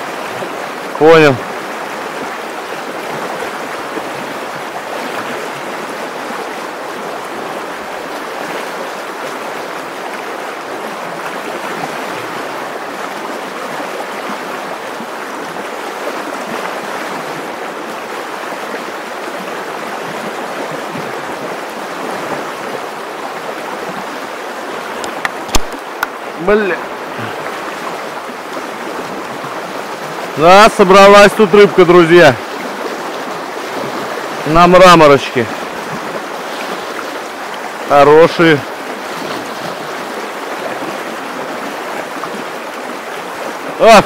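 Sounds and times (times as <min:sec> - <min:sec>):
river water rushing: 0:00.0 - 0:44.0
sharp knocks: 0:25.2 - 0:26.1.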